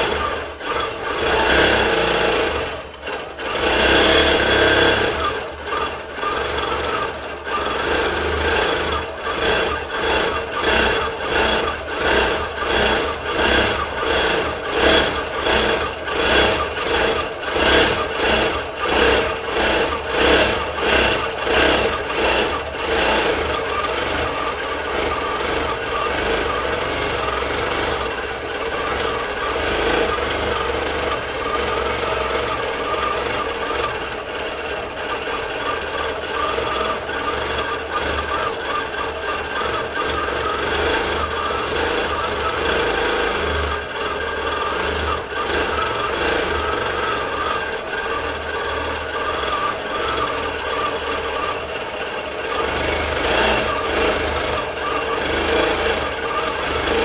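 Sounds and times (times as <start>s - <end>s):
sewing machine needle chattering: 0.0s - 57.0s.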